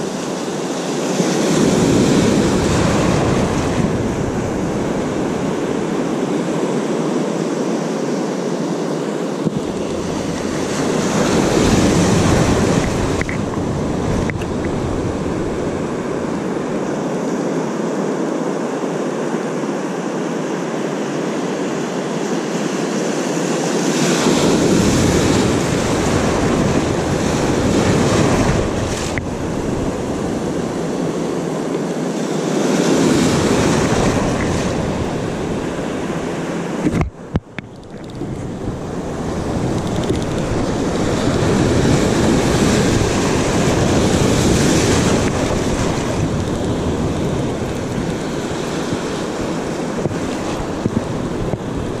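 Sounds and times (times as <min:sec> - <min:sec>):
ocean surf breaking: 0:00.0 - 0:07.2, 0:09.4 - 0:18.0, 0:21.6 - 0:52.0
wind buffeting microphone: 0:01.4 - 0:06.4, 0:09.4 - 0:17.0, 0:24.2 - 0:31.6, 0:33.0 - 0:52.0.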